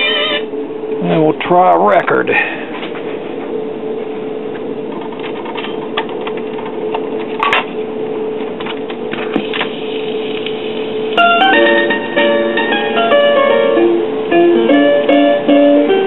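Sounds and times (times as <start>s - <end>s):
steady hum: 0.0s - 16.0s
record changer clicks and clatter: 4.5s - 7.8s, 8.4s - 10.9s.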